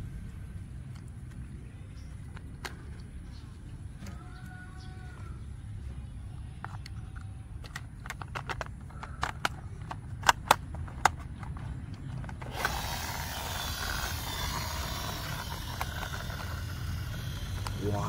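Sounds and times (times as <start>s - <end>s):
plastic toy parts clicking: 6.6s - 18.0s.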